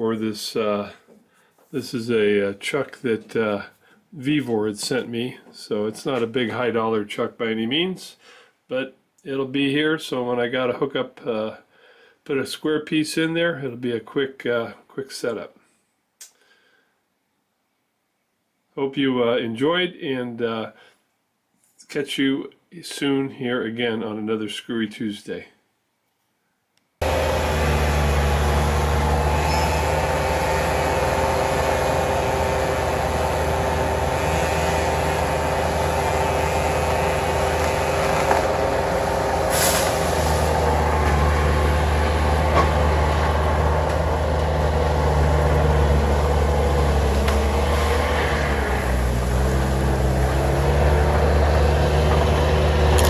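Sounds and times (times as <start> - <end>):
heavy diesel engine running: 27.0 - 53.0
brief sharp noise: 29.4 - 29.8.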